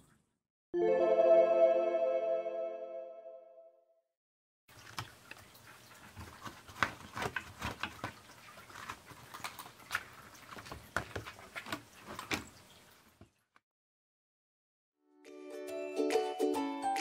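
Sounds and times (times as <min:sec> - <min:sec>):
kitten scratching plastic boxes: 0:04.7 - 0:12.9.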